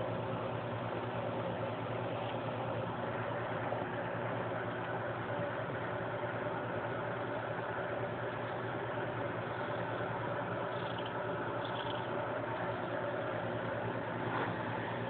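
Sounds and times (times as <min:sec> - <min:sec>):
cat purring: 0:09.3 - 0:12.7.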